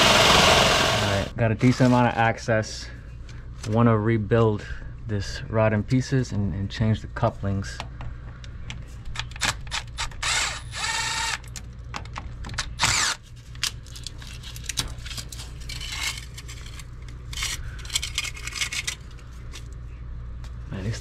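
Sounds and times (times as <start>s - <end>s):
cordless drill running: 0.0s - 1.3s, 10.2s - 11.4s, 12.8s - 13.2s
pipe fittings clicking and rattling: 13.6s - 19.6s.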